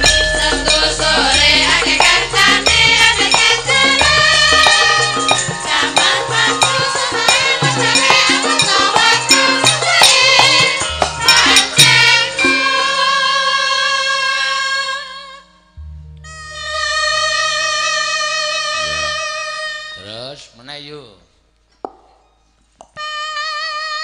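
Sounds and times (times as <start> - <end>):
gamelan percussion strikes: 0.0 - 13.3
women singing together: 0.0 - 15.4.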